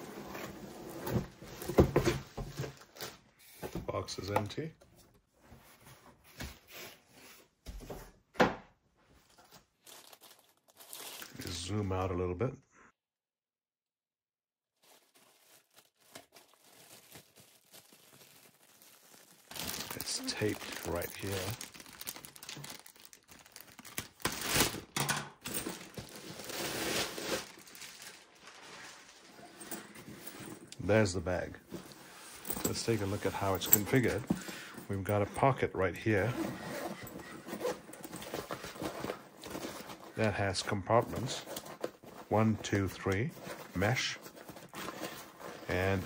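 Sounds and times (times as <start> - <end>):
plastic bag crinkling: 9.8 - 11.6, 14.8 - 29.7.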